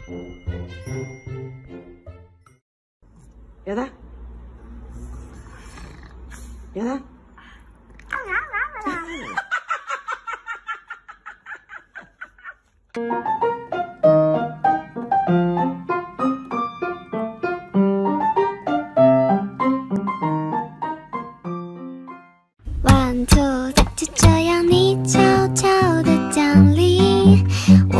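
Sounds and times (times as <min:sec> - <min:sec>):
gentle solo piano music: 0:13.0 - 0:22.2.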